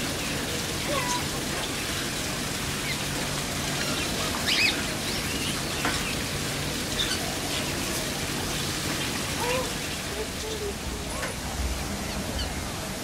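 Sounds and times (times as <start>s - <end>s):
birds chirping and calling: 2.7s - 13.0s.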